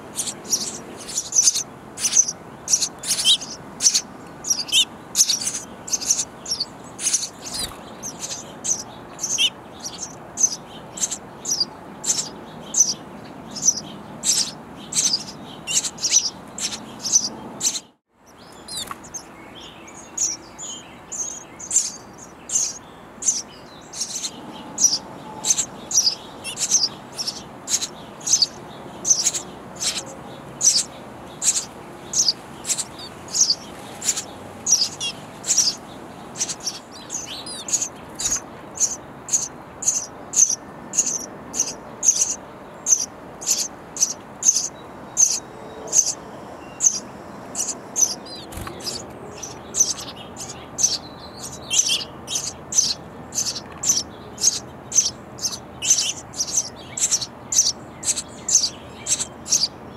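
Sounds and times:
nestlings chirping: 0:00.0 - 0:59.9.

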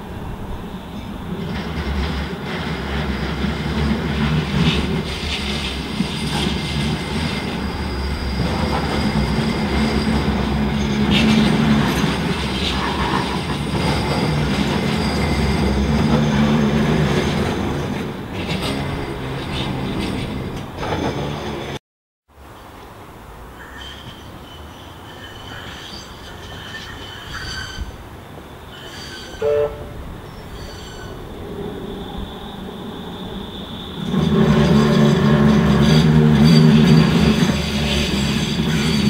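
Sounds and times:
light wheel squeal: 0:05.1 - 0:17.5, 0:23.6 - 0:39.0
tram motors humming: 0:23.5 - 0:39.0.

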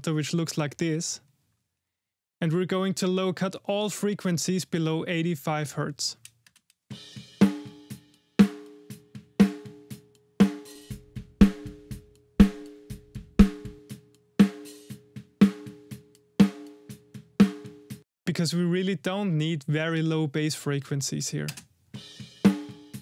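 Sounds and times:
snare drum beat: 0:10.6 - 0:13.9.

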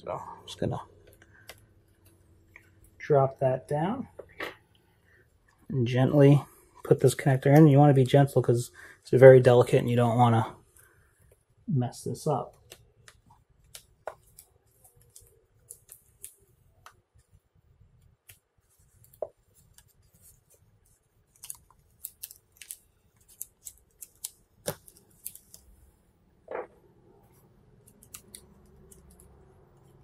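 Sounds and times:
small clicks and crinkles: 0:12.5 - 0:25.8, 0:26.5 - 0:30.0.

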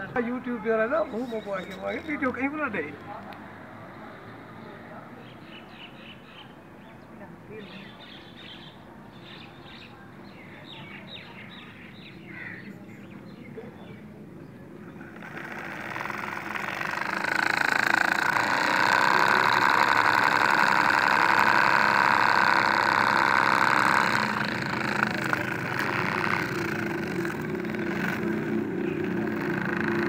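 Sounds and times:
toy motor whining: 0:15.0 - 0:30.0.

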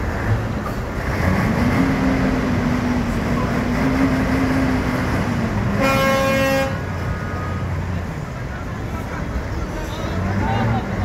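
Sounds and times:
truck diesel engine droning: 0:00.0 - 0:11.0
horn blast: 0:05.7 - 0:06.8.

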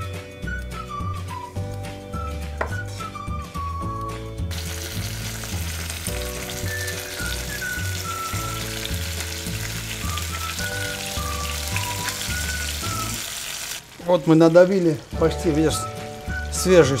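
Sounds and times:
background music with bass: 0:00.0 - 0:13.2
garlic sizzling in oil: 0:04.5 - 0:17.0.

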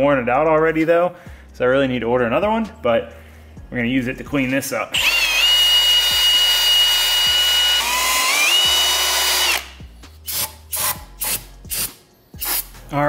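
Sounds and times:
cordless drill whining: 0:05.0 - 0:11.0.

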